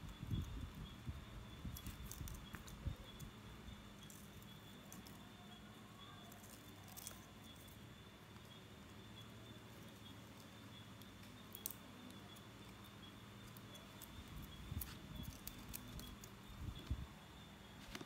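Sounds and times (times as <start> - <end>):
faint steady hum: 0.0 - 18.0
soft clicks and rustles: 17.7 - 18.0.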